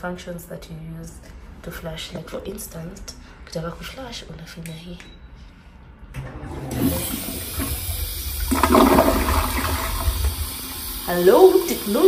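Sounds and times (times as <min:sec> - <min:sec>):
toilet flushing: 0:06.2 - 0:12.0.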